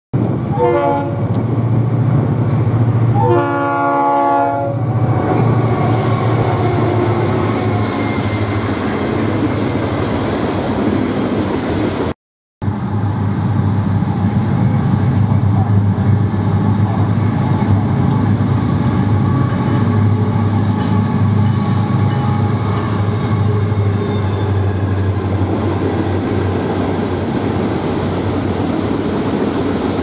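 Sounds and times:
train rumbling past: 0:00.2 - 0:30.0
locomotive horn blasts: 0:00.5 - 0:01.3, 0:03.1 - 0:05.0, 0:19.1 - 0:25.2
diesel engine drone: 0:12.6 - 0:29.2.

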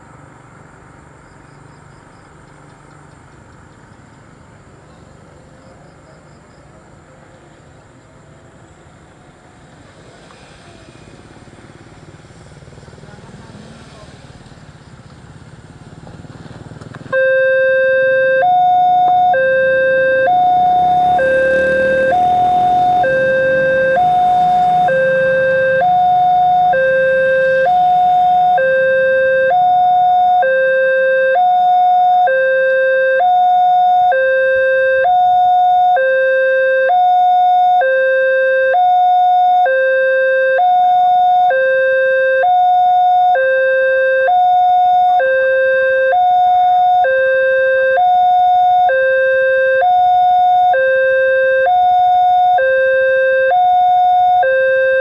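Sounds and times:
motorcycle engine passing: 0:09.2 - 0:32.7
level crossing two-tone alarm: 0:17.1 - 0:55.0.

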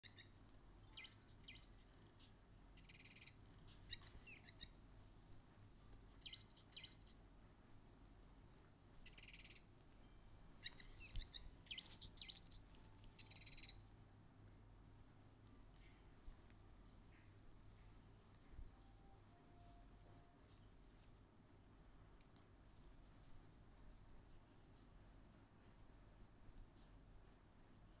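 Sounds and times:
bird chirps and trills: 0:00.0 - 0:02.0, 0:02.8 - 0:04.8, 0:06.2 - 0:07.3, 0:09.0 - 0:13.8.

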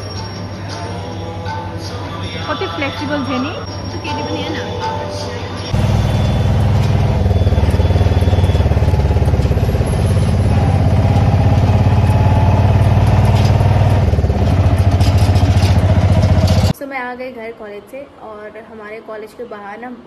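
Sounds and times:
auto-rickshaw engine running: 0:05.7 - 0:16.7.

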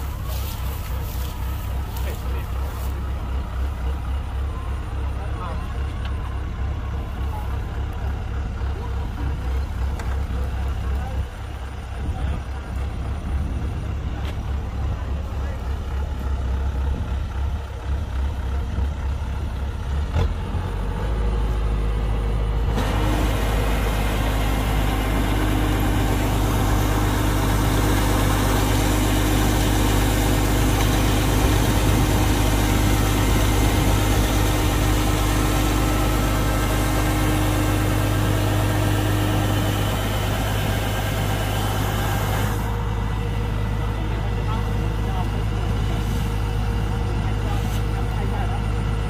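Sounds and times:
diesel engine running: 0:00.0 - 0:49.0
loud rushing machine noise: 0:22.7 - 0:44.0.

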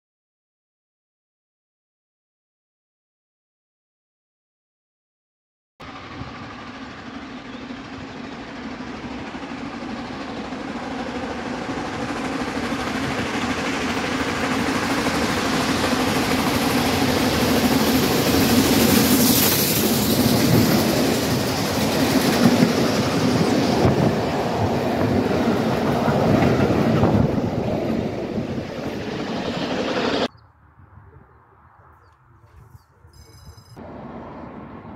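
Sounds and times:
steam train passing: 0:05.8 - 0:30.3, 0:33.2 - 0:34.9.

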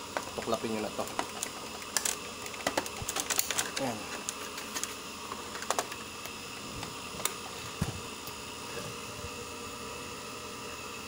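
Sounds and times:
plastic clicks and knocks: 0:00.1 - 0:04.4.

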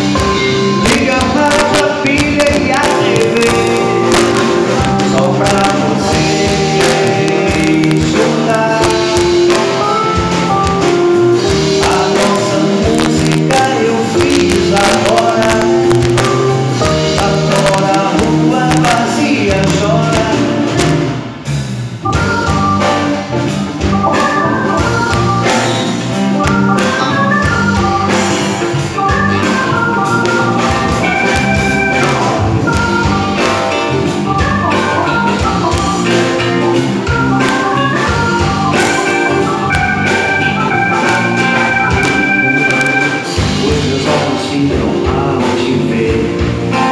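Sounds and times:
acoustic guitar: 0:00.0 - 0:21.5
drums: 0:00.0 - 0:46.9
electric bass: 0:00.0 - 0:46.9
keyboard organ sound: 0:00.0 - 0:46.9.

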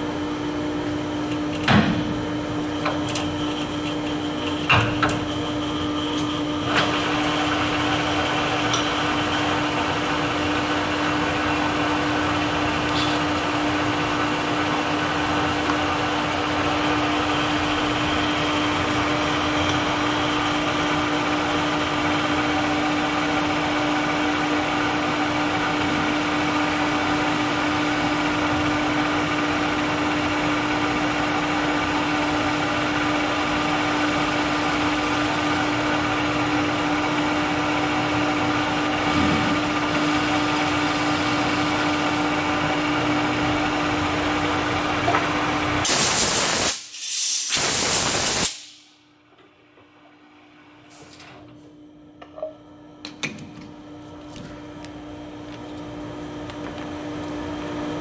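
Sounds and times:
metal lathe running: 0:02.3 - 0:45.9.

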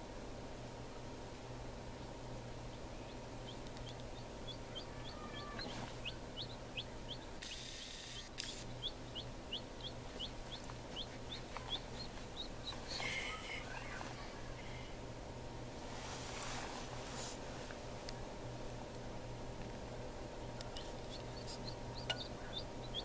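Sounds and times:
incubator hum: 0:00.0 - 0:23.0
chick peeping: 0:02.0 - 0:14.6, 0:20.4 - 0:23.0.

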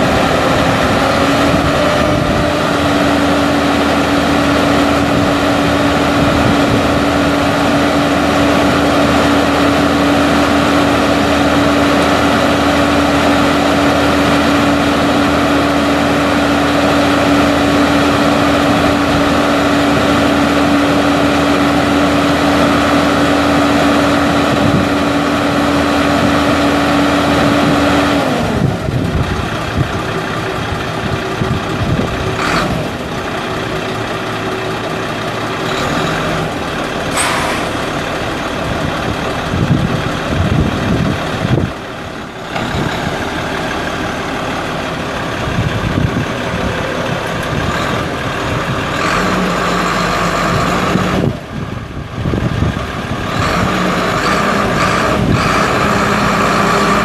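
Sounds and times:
diesel truck engine whining: 0:00.0 - 0:57.0
short sharp noises: 0:37.1 - 0:38.0.

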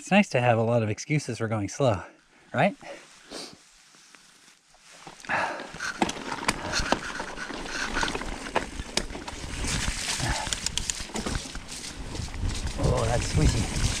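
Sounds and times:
bike tyres rolling: 0:03.8 - 0:14.0
bike frame clicks and knocks: 0:10.4 - 0:11.6.

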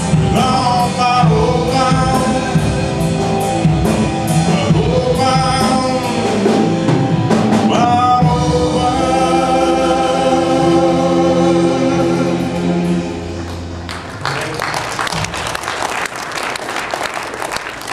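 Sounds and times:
man singing lead vocals: 0:00.0 - 0:03.2, 0:04.3 - 0:06.8, 0:07.6 - 0:13.0
drums and cymbals: 0:00.0 - 0:13.2
live rock band playing: 0:00.0 - 0:13.9.

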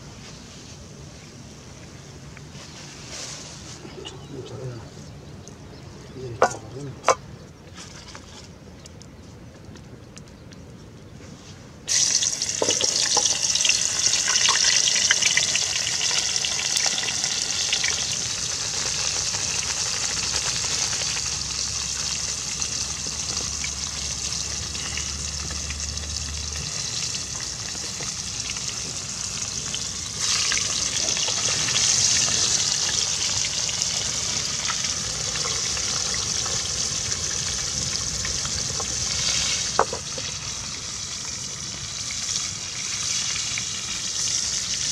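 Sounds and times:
fish frying in hot oil: 0:11.9 - 0:44.9.

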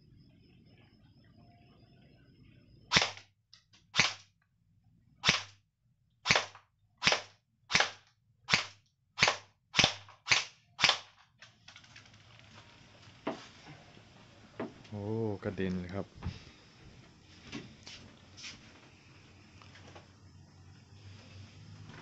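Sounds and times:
airsoft gun shots: 0:02.9 - 0:03.2, 0:03.9 - 0:04.3, 0:05.2 - 0:05.6, 0:06.2 - 0:11.2.

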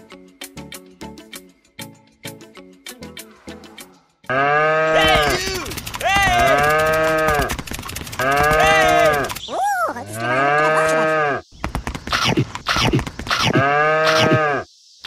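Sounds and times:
cows mooing: 0:04.3 - 0:05.4, 0:06.2 - 0:07.6, 0:08.2 - 0:09.3, 0:10.1 - 0:11.4, 0:13.5 - 0:14.7.

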